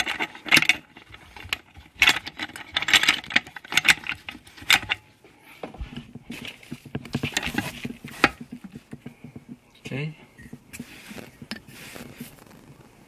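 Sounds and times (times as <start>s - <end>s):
metal parts clinking and clicking: 0.0s - 5.0s.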